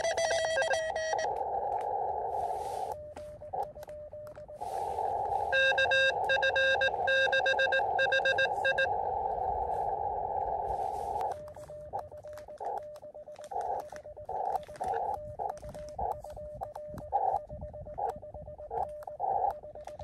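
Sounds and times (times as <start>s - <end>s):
clicks: 0.0s - 20.0s
morse code tones: 0.0s - 20.0s
radio band hiss: 1.7s - 3.7s, 4.5s - 17.4s.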